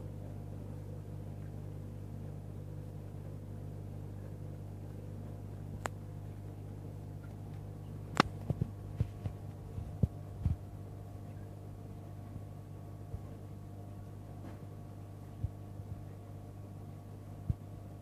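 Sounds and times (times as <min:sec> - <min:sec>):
aquarium pumps humming: 0:00.0 - 0:18.0
sharp clicks and knocks: 0:07.2 - 0:10.6.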